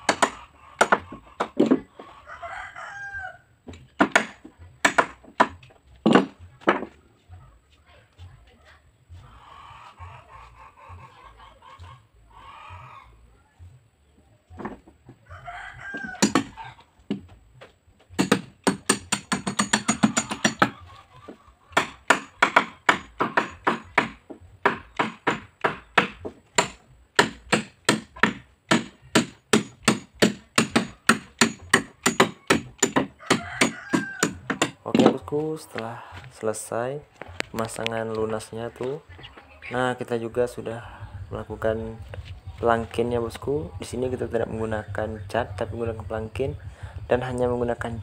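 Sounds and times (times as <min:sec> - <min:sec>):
hammer driving nails into wood: 0:04.0 - 0:06.8, 0:18.2 - 0:20.7, 0:21.8 - 0:35.1.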